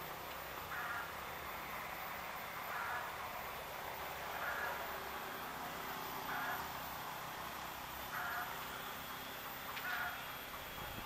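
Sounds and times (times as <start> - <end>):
distant locomotive hum: 0.0 - 11.0
bird calling: 0.6 - 1.2, 2.6 - 3.2, 4.2 - 6.9, 8.0 - 9.0, 9.6 - 11.0.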